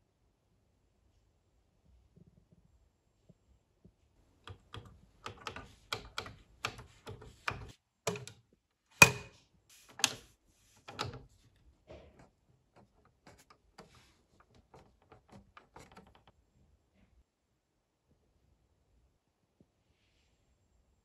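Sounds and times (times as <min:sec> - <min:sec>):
plastic buttons clicking: 0:04.5 - 0:08.4, 0:09.0 - 0:09.3, 0:10.0 - 0:11.3.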